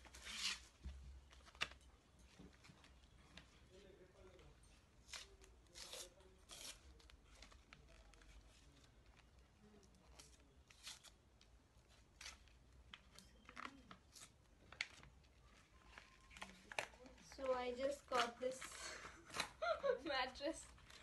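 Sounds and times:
plastic wrap and paper crinkling: 5.0s - 11.2s, 11.8s - 21.0s.

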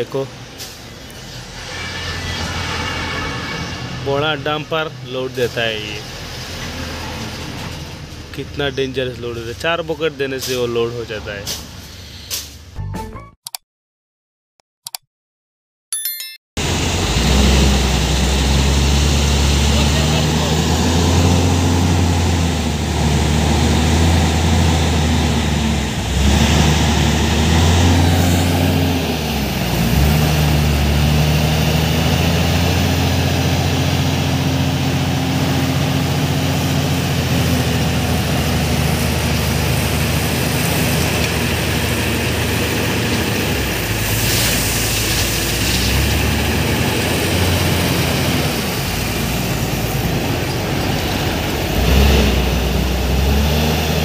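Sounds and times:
wheel loader diesel engine working: 16.6s - 54.0s.

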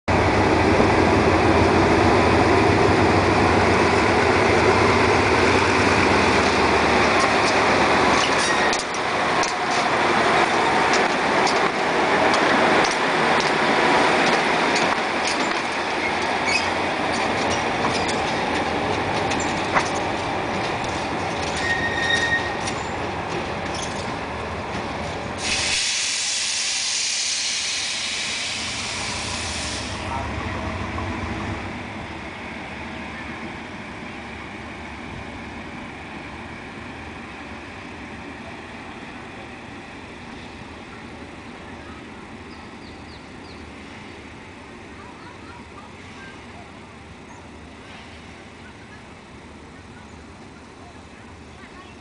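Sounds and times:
locomotive diesel engine running: 0.1s - 52.0s
wheels clicking over rail joints: 4.0s - 25.5s.

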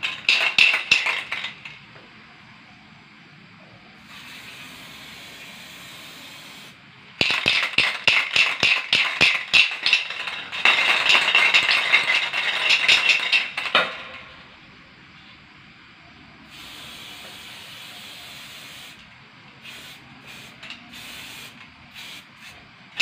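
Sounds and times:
spray can ball rattling: 0.0s - 1.8s, 6.5s - 14.3s, 16.5s - 19.0s, 19.6s - 23.0s.

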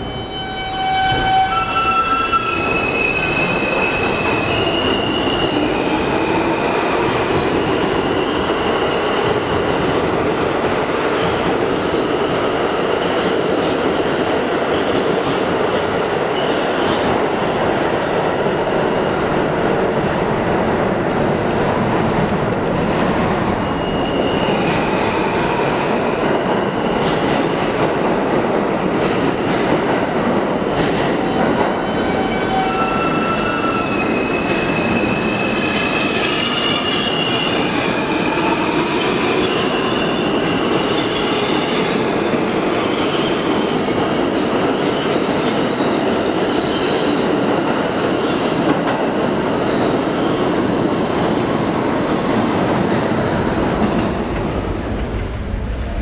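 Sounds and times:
train wheels rumbling on rails: 1.0s - 56.0s.

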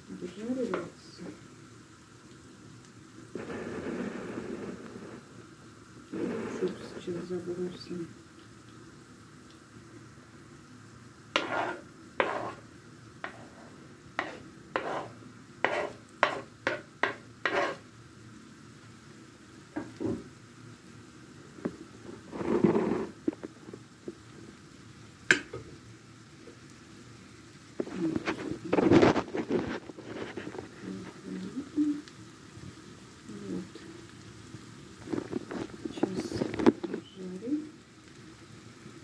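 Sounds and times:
faint frying sizzle: 0.0s - 39.0s
spoon scraping wooden board: 11.4s - 12.6s, 13.2s - 17.8s.

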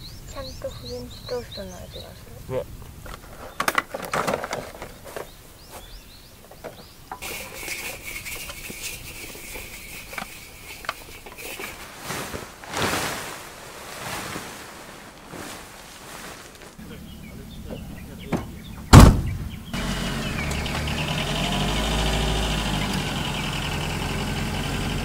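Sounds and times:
camp gear and tableware clinking: 3.0s - 13.3s
tent fabric rustling: 10.6s - 16.9s.

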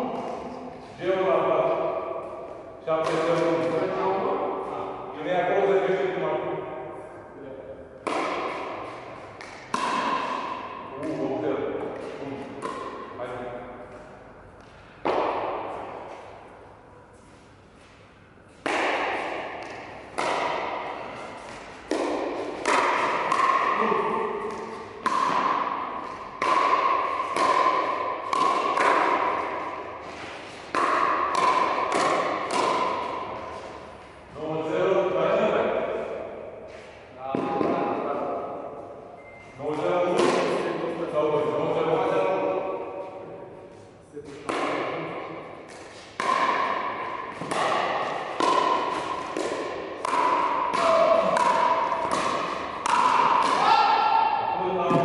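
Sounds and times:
paddles hitting plastic ball: 3.0s - 4.0s, 8.0s - 13.1s, 18.6s - 33.9s, 39.7s - 40.7s, 44.3s - 54.1s.

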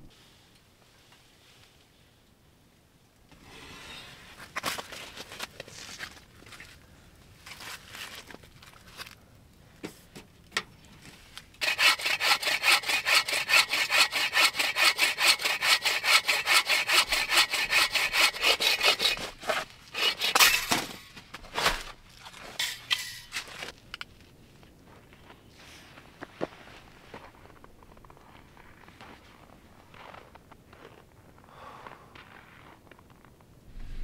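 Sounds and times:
saw cutting through log: 11.6s - 20.7s.

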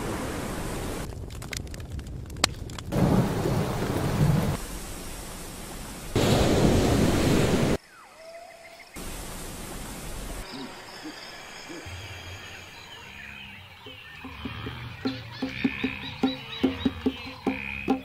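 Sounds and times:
rushing noise: 6.2s - 7.8s
bird calls with whistled notes: 10.4s - 18.0s.

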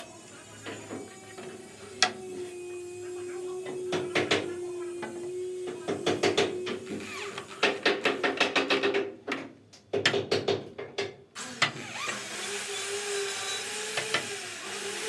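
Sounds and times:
electric drill motor: 0.0s - 8.3s, 11.4s - 15.0s.

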